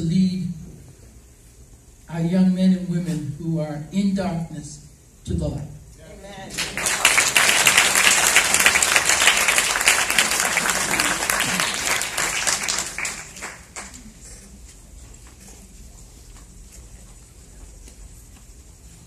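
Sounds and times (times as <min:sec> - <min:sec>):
audience applauding: 0:06.5 - 0:14.2.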